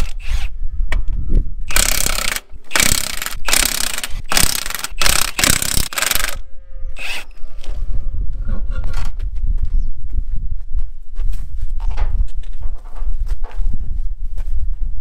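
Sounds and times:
ratchet wrench clicking: 1.7s - 6.4s.

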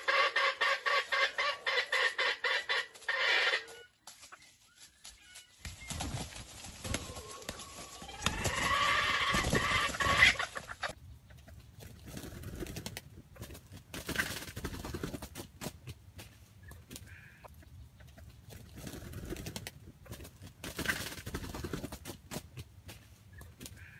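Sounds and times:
junglefowl clucking softly: 0.0s - 4.0s, 7.0s - 11.6s, 23.3s - 23.9s
rustling in dry leaves: 3.0s - 11.0s.

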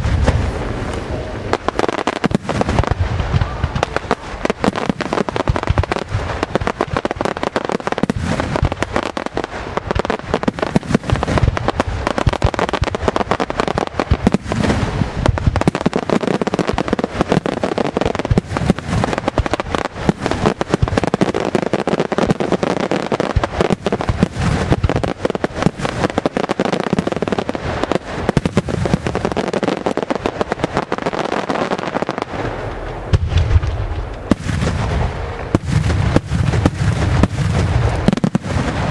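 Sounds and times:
low boom: 0.0s - 4.5s, 32.4s - 38.9s
fireworks bursting and crackling: 0.0s - 38.9s.

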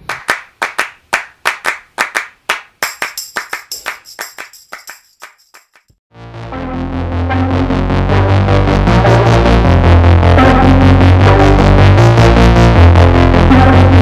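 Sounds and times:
clap-like percussive hits: 0.0s - 6.0s.

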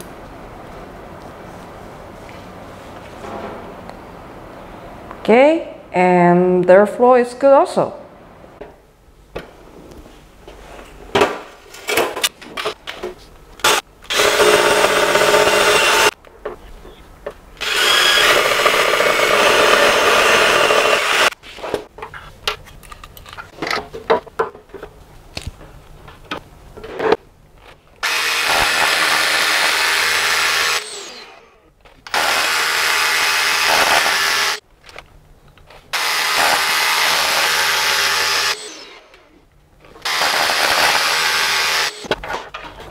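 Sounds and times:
rotary hammer drilling into wall: 13.7s - 16.2s, 17.6s - 21.4s, 28.0s - 31.5s, 32.1s - 34.6s, 36.0s - 39.0s, 40.0s - 42.1s.

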